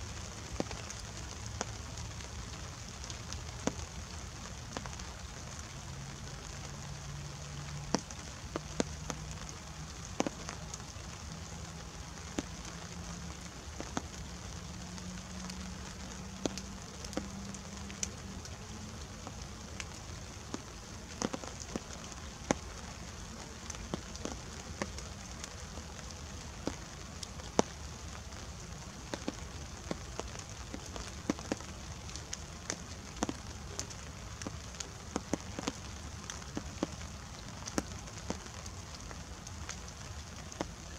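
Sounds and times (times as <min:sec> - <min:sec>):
rain hiss: 0:00.0 - 0:40.9
raindrops ticking: 0:00.0 - 0:40.9.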